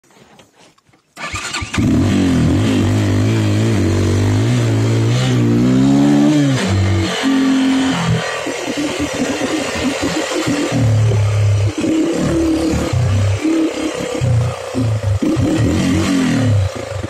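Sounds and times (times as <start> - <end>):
motorcycle engine revving: 1.2 - 17.0.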